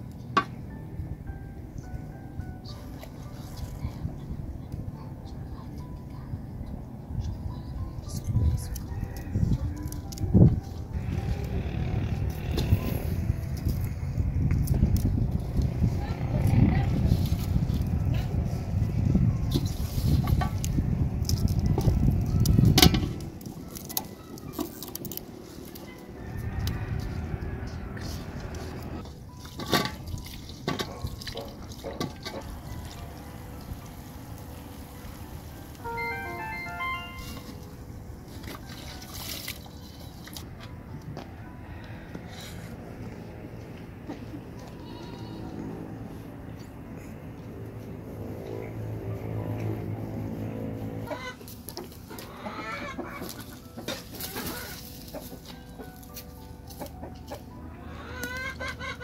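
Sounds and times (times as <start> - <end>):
chickens clucking: 51.0 - 59.0.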